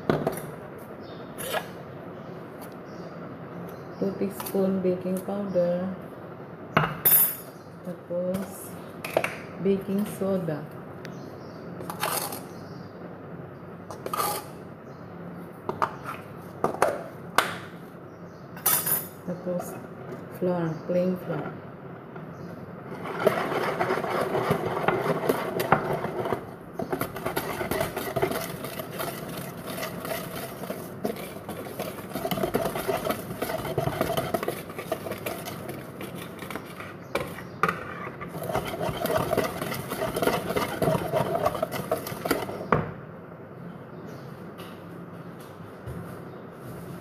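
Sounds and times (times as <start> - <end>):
whisk beating batter in bowl: 22.9 - 42.7.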